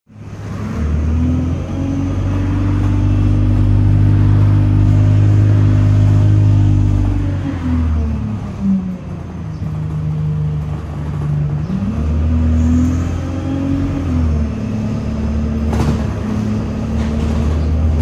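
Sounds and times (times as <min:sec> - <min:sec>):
bus diesel engine humming: 0:00.1 - 0:18.0.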